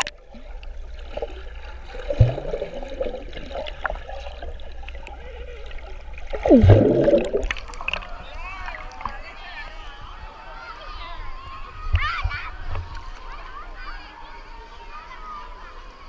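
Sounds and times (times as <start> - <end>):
muffled underwater rumble with gurgling: 0.1 - 8.2.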